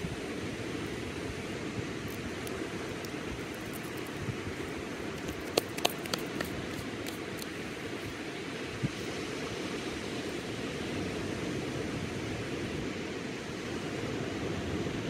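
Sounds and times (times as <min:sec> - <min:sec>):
sharp clicks: 0:05.2 - 0:07.5.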